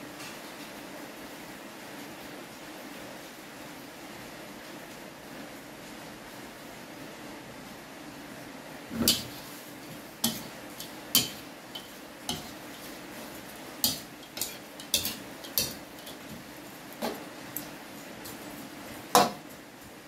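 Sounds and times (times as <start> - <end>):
faint steady hiss: 0.0 - 20.0
metal spatula scraping a wok: 8.9 - 16.4.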